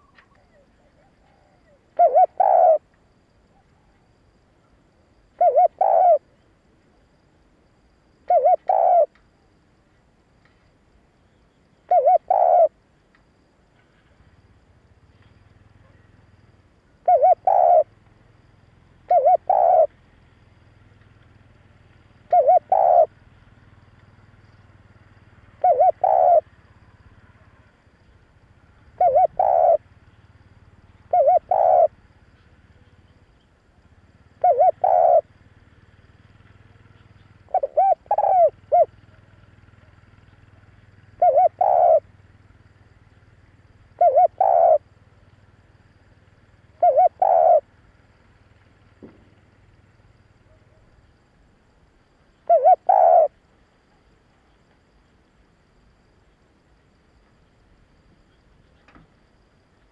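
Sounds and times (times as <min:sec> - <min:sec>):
dove cooing: 0:00.0 - 0:02.9, 0:05.4 - 0:06.4, 0:08.2 - 0:09.1, 0:11.9 - 0:12.8, 0:17.0 - 0:17.9, 0:19.0 - 0:19.9, 0:22.2 - 0:23.1, 0:25.6 - 0:26.5, 0:28.9 - 0:29.8, 0:31.0 - 0:32.0, 0:34.4 - 0:35.3, 0:36.7 - 0:42.1, 0:43.9 - 0:44.8, 0:46.7 - 0:47.7, 0:52.4 - 0:53.4.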